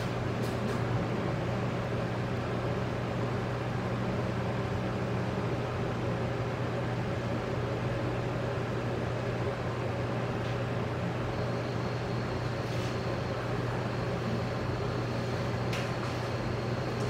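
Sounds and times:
low machine hum with hiss: 0:00.0 - 0:17.0.

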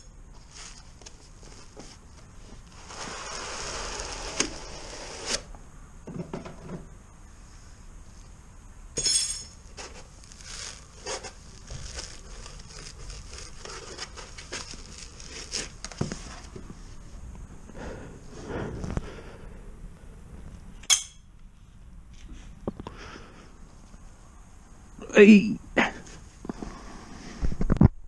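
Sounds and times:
cardboard and foam rustling: 0:00.3 - 0:05.5, 0:09.7 - 0:17.2
metallic clink with ring: 0:09.0 - 0:09.6.

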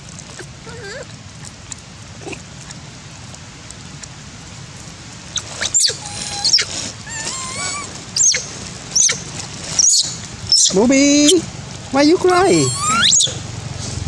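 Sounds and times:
baby monkeys crying: 0:00.4 - 0:01.0, 0:05.4 - 0:09.2, 0:09.8 - 0:10.8, 0:12.4 - 0:13.4.

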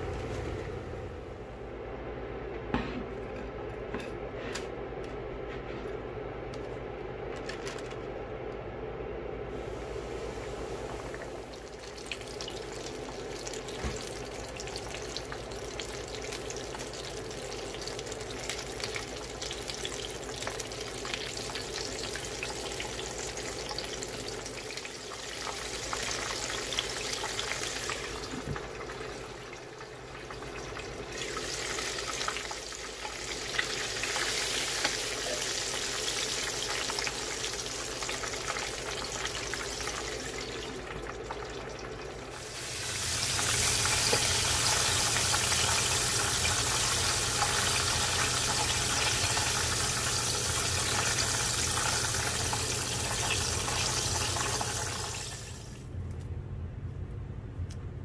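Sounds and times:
chicken sizzling in hot oil: 0:09.5 - 0:55.7.

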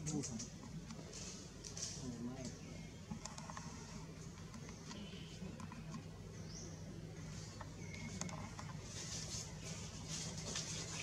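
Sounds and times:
light rustling: 0:07.2 - 0:11.0.

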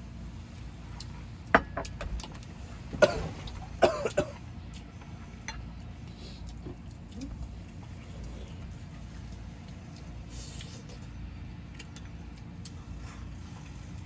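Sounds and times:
person coughing: 0:03.0 - 0:04.4.

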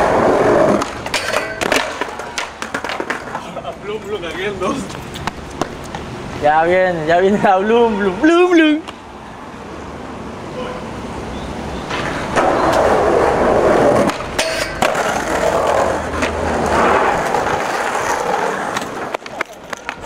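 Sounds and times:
skateboard clacks: 0:00.0 - 0:03.8, 0:04.8 - 0:06.1, 0:11.9 - 0:20.0
skateboard wheels rolling on pavement: 0:00.0 - 0:20.0.

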